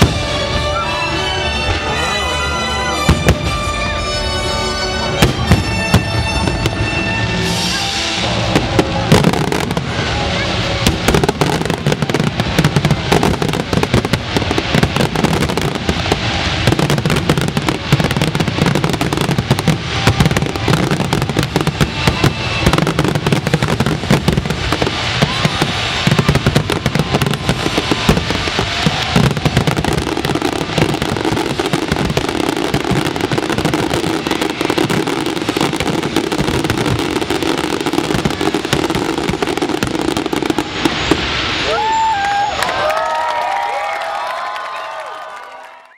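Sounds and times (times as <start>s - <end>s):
fireworks bangs and crackling: 0.0s - 45.6s
background music: 0.1s - 10.3s.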